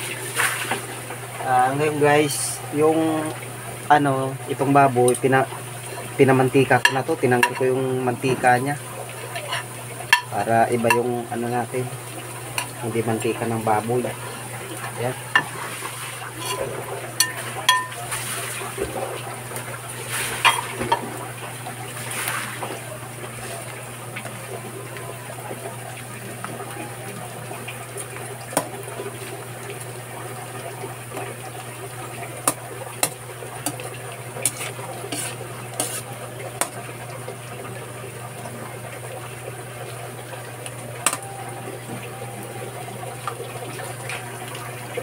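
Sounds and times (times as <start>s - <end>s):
food sizzling in oil: 5.6s - 25.3s, 27.6s - 37.3s
metal spoon scraping wok: 16.4s - 17.9s, 34.4s - 36.1s.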